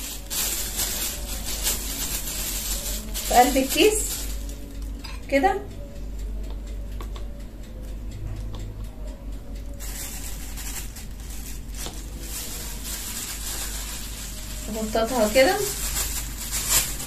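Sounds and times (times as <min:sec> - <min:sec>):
plastic bag rustling: 0:00.0 - 0:04.7, 0:09.8 - 0:17.0.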